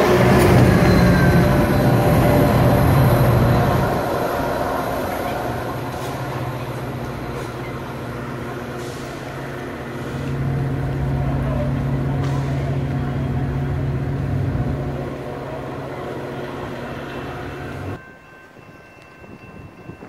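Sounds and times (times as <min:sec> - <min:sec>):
train rolling past: 0:00.0 - 0:20.0.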